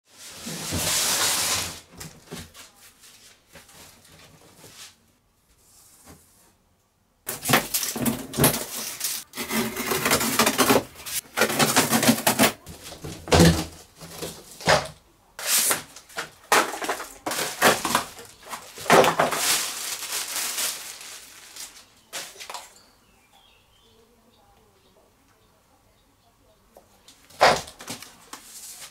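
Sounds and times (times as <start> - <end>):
cardboard box dragged on concrete: 0.1 - 2.0, 8.0 - 13.4
cardboard scraping crinkling and tearing: 0.1 - 2.6, 7.3 - 22.5, 27.4 - 28.9.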